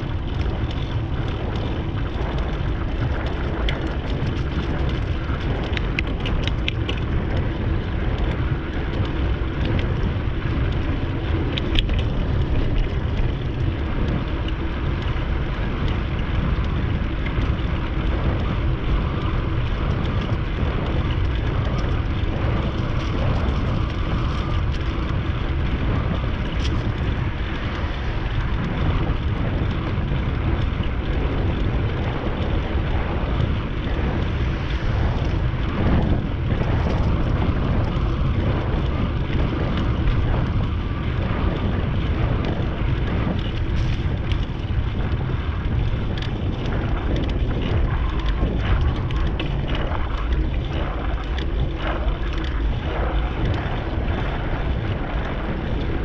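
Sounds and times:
wind buffeting microphone: 0.0 - 56.0
light clicks and rattles: 0.3 - 41.6.

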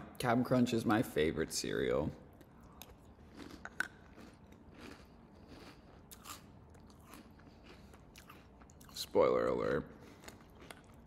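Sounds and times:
person chewing crunchy cereal: 2.3 - 11.0.

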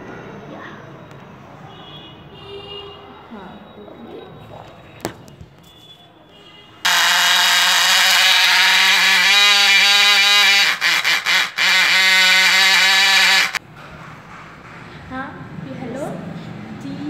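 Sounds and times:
small motor buzzing whine: 6.9 - 13.6.

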